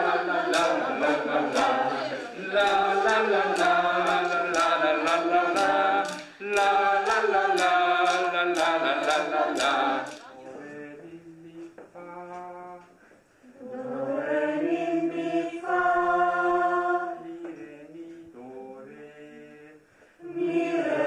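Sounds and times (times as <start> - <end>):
group singing in unison: 0.0 - 21.0
wooden sticks clicking: 0.5 - 10.3.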